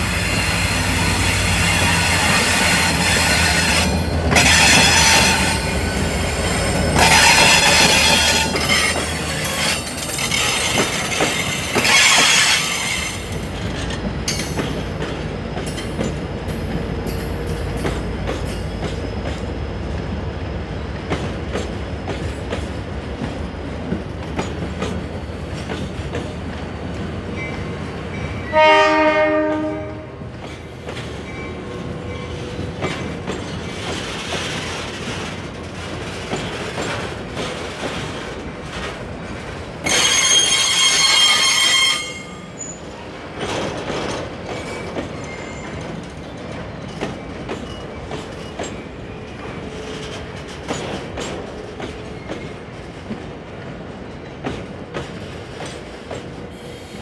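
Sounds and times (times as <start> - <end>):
rail clicks: 0.0 - 57.0
wagons rumbling on rails: 0.0 - 57.0
train horn blast: 7.0 - 8.6, 28.4 - 30.2.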